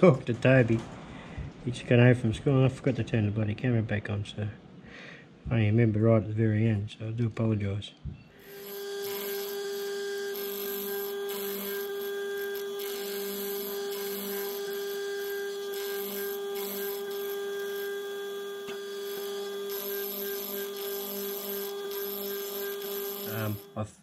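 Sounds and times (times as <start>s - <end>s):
drill cutting cast iron: 8.4s - 23.8s
drill motor and gear whine: 8.4s - 23.8s.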